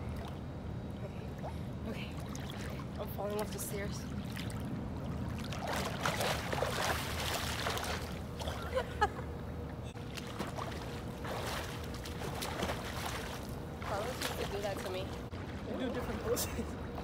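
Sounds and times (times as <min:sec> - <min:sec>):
swimmers splashing in pool water: 0:05.3 - 0:08.8, 0:10.0 - 0:17.0.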